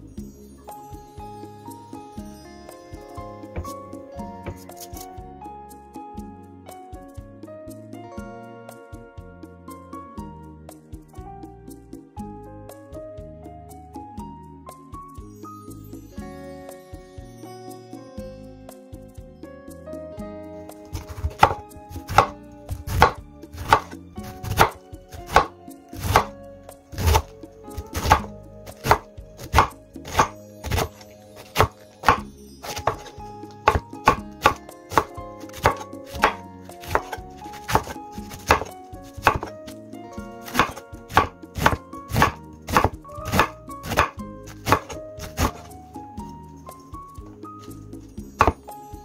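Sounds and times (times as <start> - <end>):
knife chopping on wooden board: 3.6 - 3.8, 4.4 - 4.9, 21.0 - 26.4, 27.0 - 39.6, 40.4 - 45.7, 48.4 - 48.6.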